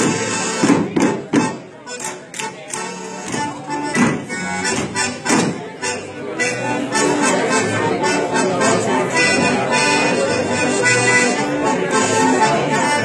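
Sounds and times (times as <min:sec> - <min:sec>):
accordion folk dance music: 0:00.0 - 0:13.0
dancers slapping and knocking: 0:03.3 - 0:05.6.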